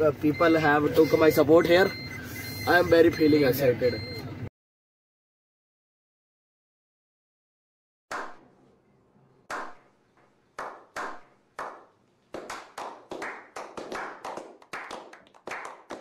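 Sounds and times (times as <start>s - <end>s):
people clapping: 9.5s - 9.8s, 10.6s - 16.0s.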